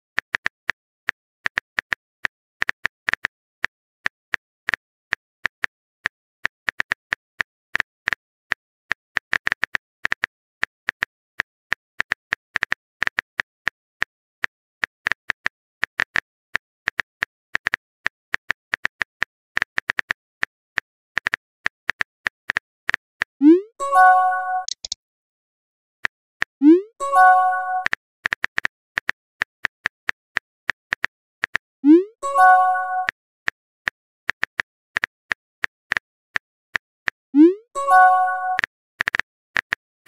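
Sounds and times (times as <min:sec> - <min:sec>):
phone keyboard tap clicks: 0:24.6 - 0:25.0.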